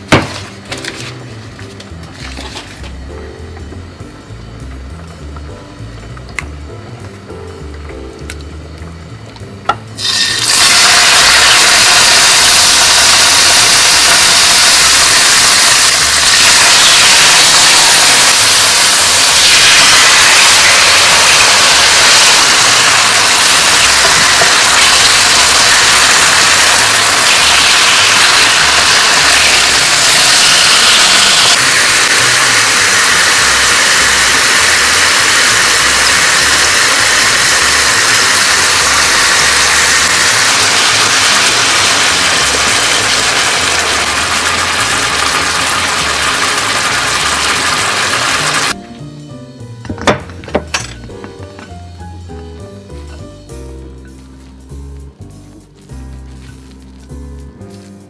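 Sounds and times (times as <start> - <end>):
chicken sizzling in hot oil: 10.0 - 48.8.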